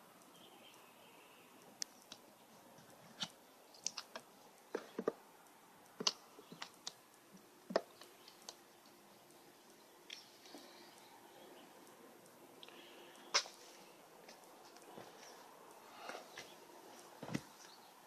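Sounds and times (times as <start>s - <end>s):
sharp clicks and light knocks: 1.6s - 11.1s.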